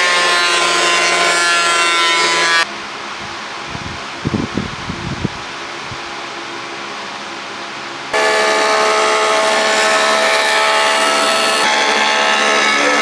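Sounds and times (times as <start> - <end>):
electric wood planer cutting: 0.0 - 2.7, 8.1 - 13.0.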